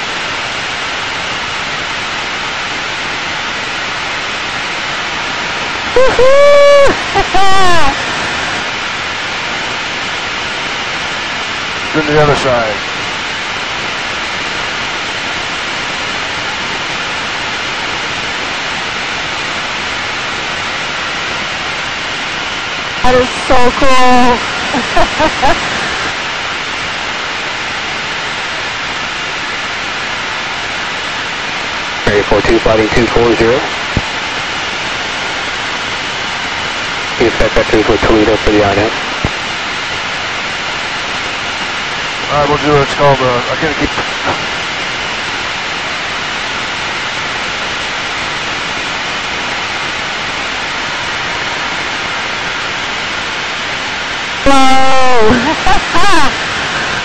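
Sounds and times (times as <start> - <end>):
jet cockpit noise: 3.9 - 20.1, 22.9 - 26.7, 32.0 - 35.2, 36.6 - 39.6, 41.5 - 45.0, 54.4 - 57.0.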